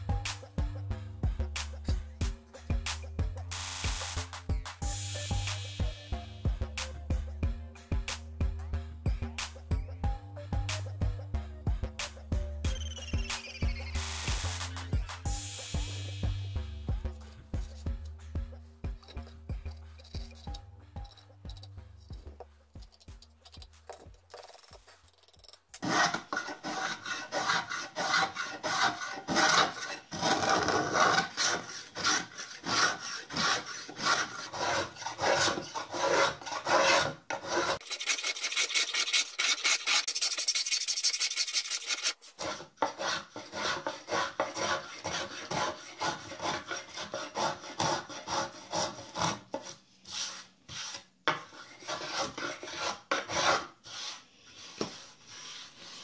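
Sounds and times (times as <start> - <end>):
hand plane scraping wood: 24.9 - 56.0.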